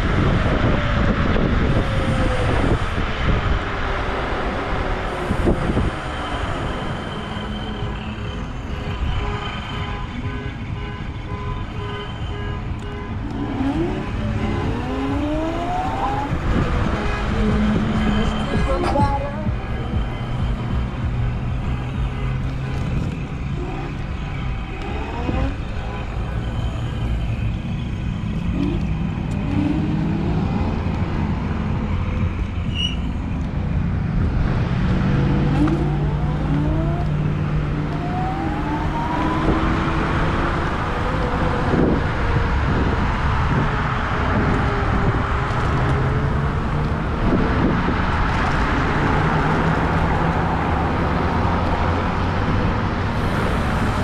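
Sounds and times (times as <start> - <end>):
wind rushing over microphone: 0.0 - 7.4, 13.2 - 21.2, 27.9 - 54.0
road rumble: 0.0 - 54.0.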